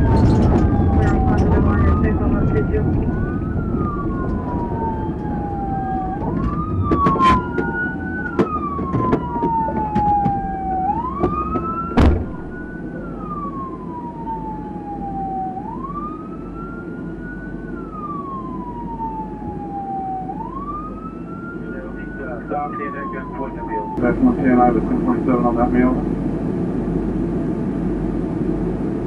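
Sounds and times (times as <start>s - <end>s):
low rumble: 0.0s - 16.6s
fainter second siren: 0.0s - 26.0s
police siren wailing: 0.0s - 26.0s
sharp knocks: 6.3s - 10.4s, 11.2s - 12.5s
loud bang: 12.0s - 12.8s.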